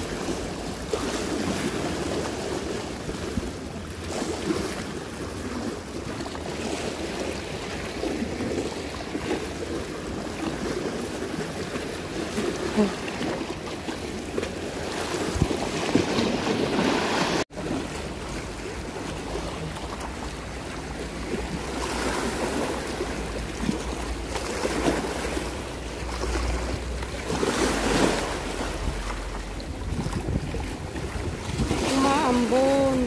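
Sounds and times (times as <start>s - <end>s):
sea water lapping: 0.0s - 33.0s
wind buffeting microphone: 26.8s - 33.0s.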